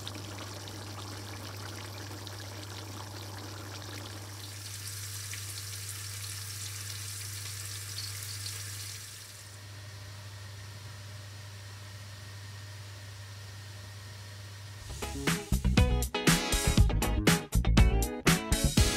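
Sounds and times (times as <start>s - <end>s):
curry sizzling in a pan: 0.0s - 9.6s.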